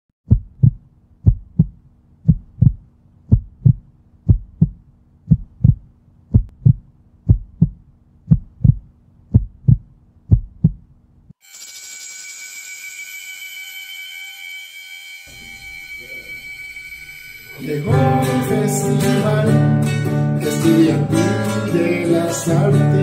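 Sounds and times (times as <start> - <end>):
heartbeat thumps: 0.2 - 11.0.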